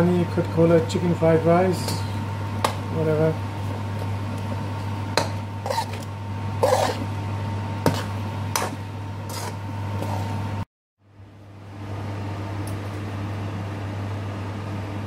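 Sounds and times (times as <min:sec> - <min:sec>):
steady low hum: 0:00.0 - 0:15.0
metal spoon scraping a frying pan: 0:05.2 - 0:07.1, 0:07.8 - 0:10.3.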